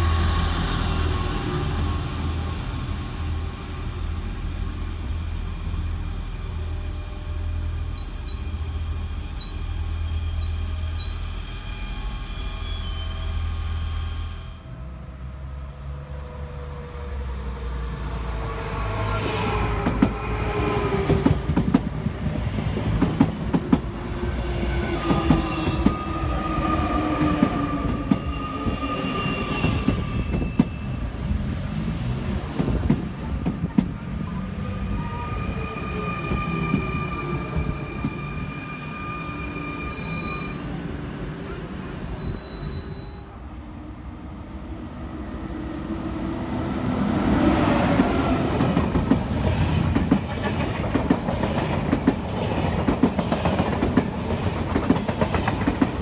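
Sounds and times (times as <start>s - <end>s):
electric train whine: 0.0s - 21.6s
high steady squeals: 7.8s - 14.6s
train wheels clacking on rail joints: 48.0s - 56.0s.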